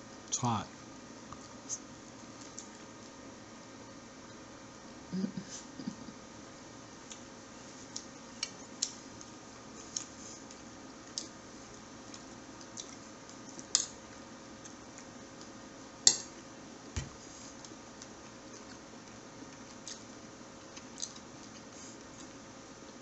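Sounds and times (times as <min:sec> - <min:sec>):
faint steady hum: 0:00.0 - 0:23.0
light eating clicks: 0:07.9 - 0:16.5, 0:17.6 - 0:23.0.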